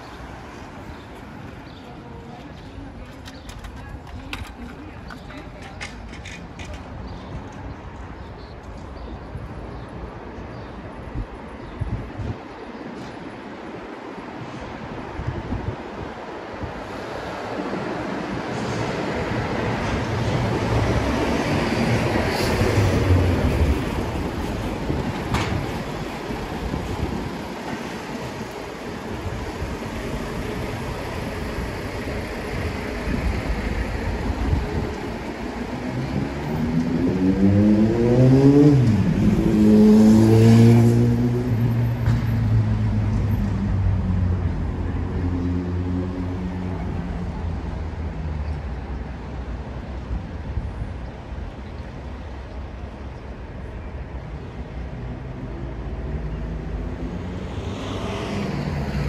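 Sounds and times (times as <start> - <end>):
steady traffic rumble: 0.0 - 59.0
vehicle engine accelerating: 35.8 - 46.5.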